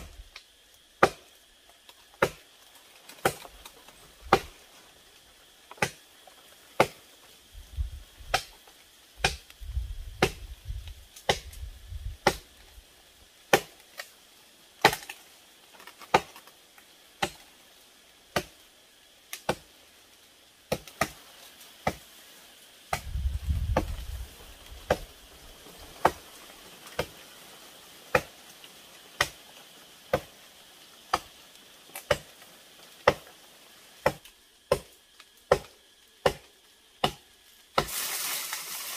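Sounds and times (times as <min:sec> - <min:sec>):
low rumble: 0:23.0 - 0:24.3.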